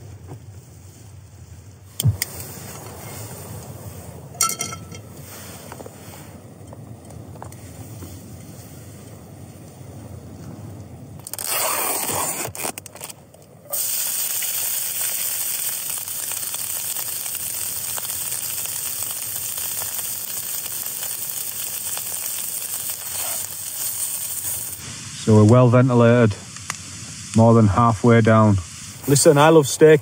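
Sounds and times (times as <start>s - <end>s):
food sizzling in a frying pan: 13.7s - 25.5s, 28.5s - 30.0s.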